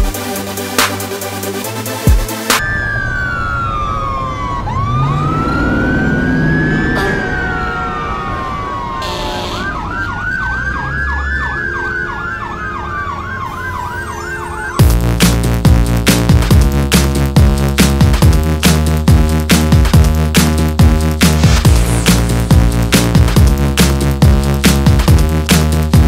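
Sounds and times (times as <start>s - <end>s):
emergency vehicle siren: 2.5s - 15.2s.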